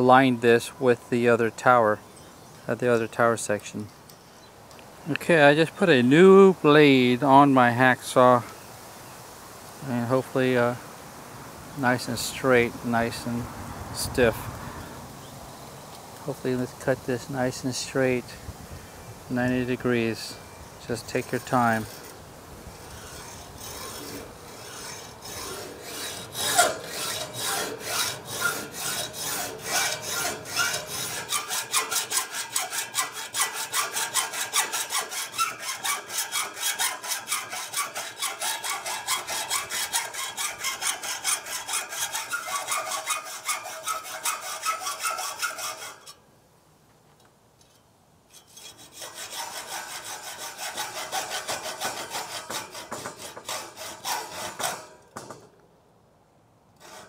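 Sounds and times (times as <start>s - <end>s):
hacksaw cutting metal tube: 20.9s - 46.2s, 48.3s - 55.5s, 56.8s - 57.0s.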